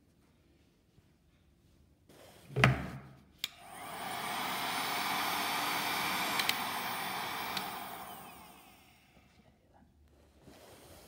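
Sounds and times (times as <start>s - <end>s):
heat gun fan blowing: 3.4s - 9.5s
heat gun switch click: 6.1s - 7.9s.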